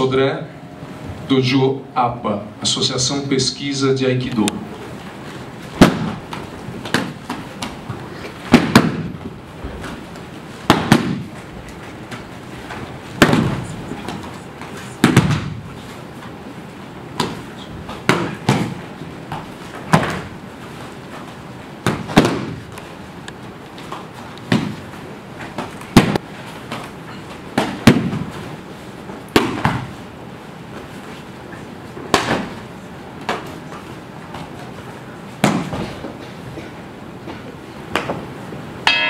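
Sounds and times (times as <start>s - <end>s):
bodies slapping onto a mat: 5.6s - 11.5s, 12.1s - 16.0s, 17.1s - 22.8s, 23.8s - 28.5s, 29.2s - 30.0s, 32.0s - 36.4s.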